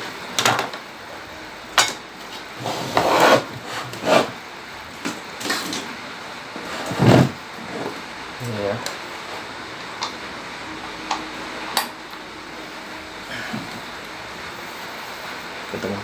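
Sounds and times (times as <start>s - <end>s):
rubbing and scraping handling noise: 2.2s - 4.4s.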